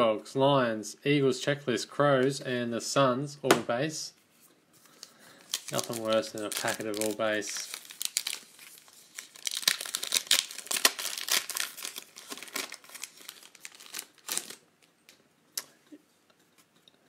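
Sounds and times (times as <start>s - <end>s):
card pack wrapper tearing and crinkling: 4.8s - 14.6s.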